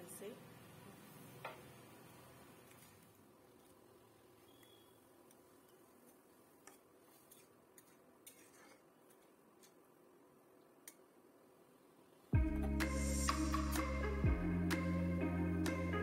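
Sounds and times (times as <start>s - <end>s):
low steady hiss: 0.0s - 16.0s
metal spatula scraping a wok: 7.1s - 9.8s
loud music: 12.4s - 16.0s.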